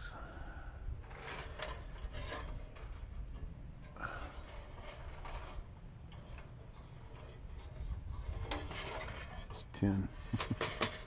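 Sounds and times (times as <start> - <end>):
wind rumbling on microphone: 0.0 - 6.7, 7.4 - 9.3
faint rustling: 0.0 - 11.0.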